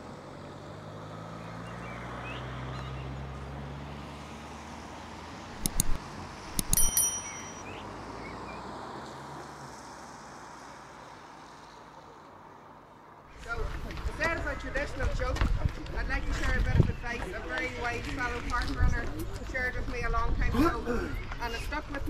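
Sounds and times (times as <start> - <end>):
sharp metallic clicks: 5.5 - 7.6.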